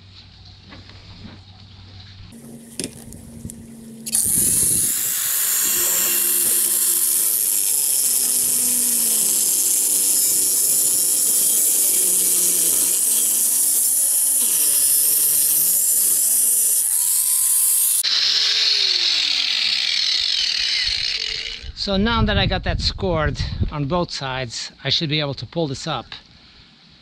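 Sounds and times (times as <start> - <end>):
power tool cutting metal: 2.4 - 21.8.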